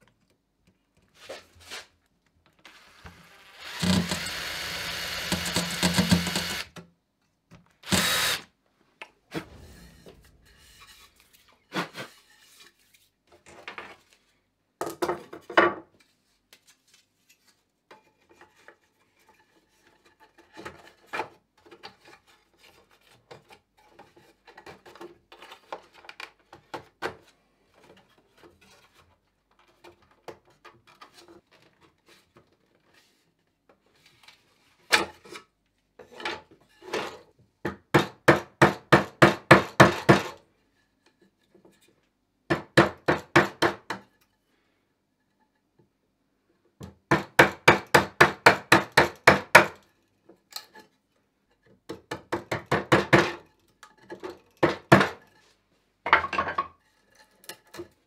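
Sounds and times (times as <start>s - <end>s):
hammer striking nail: 3.7s - 6.6s, 47.1s - 49.8s
metal frame knocking and scraping: 9.3s - 12.1s.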